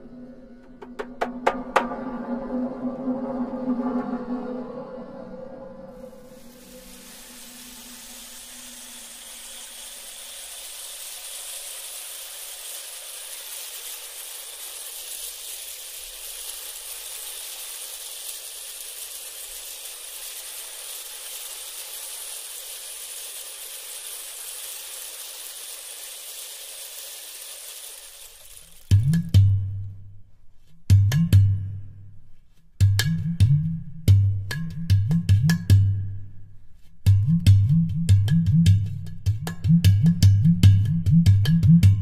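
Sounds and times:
high-pitched hiss: 0.0s - 29.6s.

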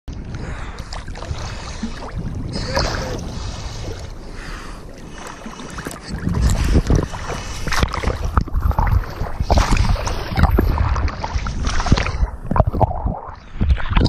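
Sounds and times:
water sloshing and splashing: 0.1s - 14.0s
deep rush of water: 0.3s - 12.3s.

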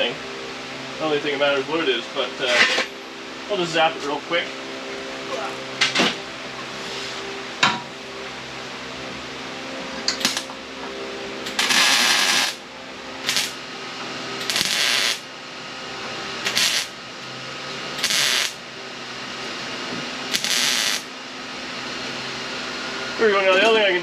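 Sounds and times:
welder crackling bursts: 10.2s - 10.5s, 11.5s - 12.6s, 13.2s - 13.6s, 14.4s - 15.2s, 16.4s - 17.0s, 18.0s - 18.6s, 20.3s - 21.1s.

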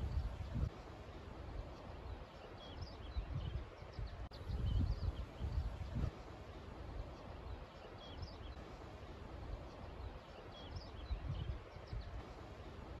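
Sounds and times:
wind buffeting microphone: 0.0s - 2.2s, 2.8s - 6.2s, 10.7s - 13.0s
songbirds chirping: 0.0s - 13.0s.

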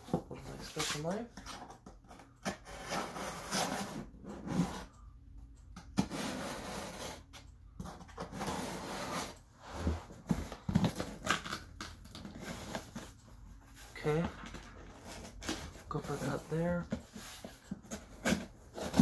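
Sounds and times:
tape and cardboard scraping: 2.5s - 4.9s, 8.0s - 13.1s, 14.5s - 19.0s.

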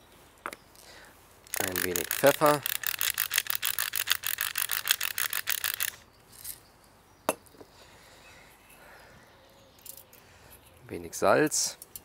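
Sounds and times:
pepper mill grinding: 1.5s - 6.6s.

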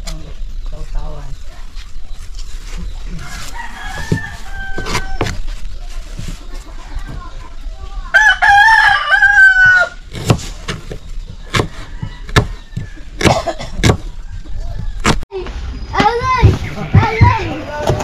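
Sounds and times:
rooster crowing: 3.2s - 5.4s, 8.1s - 10.0s, 11.7s - 13.2s
knife chopping on wooden board: 10.1s - 12.6s, 13.2s - 14.1s.

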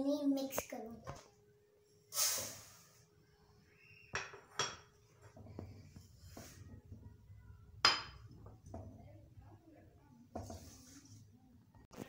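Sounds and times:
dishes clinking: 4.2s - 5.7s, 7.8s - 8.9s.

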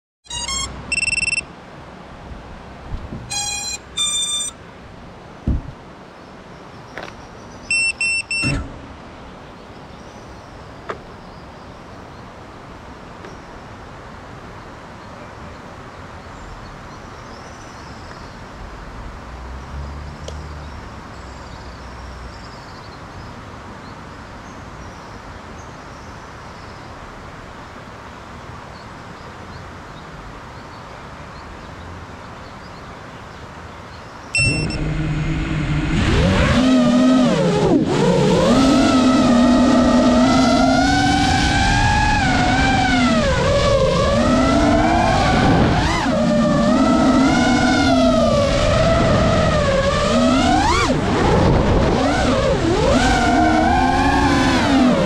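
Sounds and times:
electronic beeps: 0.3s - 1.5s, 3.3s - 4.6s, 7.7s - 8.7s, 34.4s - 35.5s
outdoor background hiss: 0.3s - 55.0s
faint high chirps: 3.3s - 4.6s, 7.7s - 8.6s, 34.4s - 34.9s
soft knocks: 5.4s - 5.8s.

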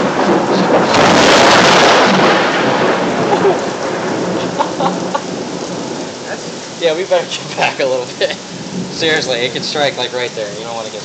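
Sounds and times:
heavy rain: 0.0s - 11.0s
thunder rumbling: 0.0s - 11.0s.

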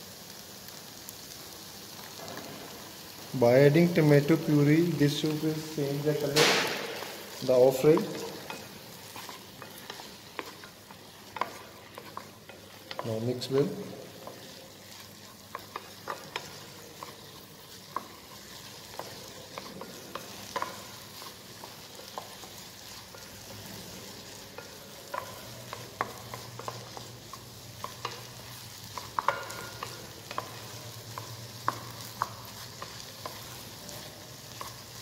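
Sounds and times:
vegetables sizzling: 0.0s - 35.0s
spatula scraping a pan: 5.1s - 28.2s.

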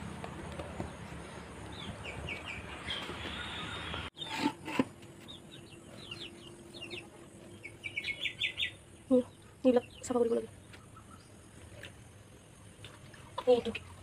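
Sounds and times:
small bird chirping: 5.2s - 11.9s.

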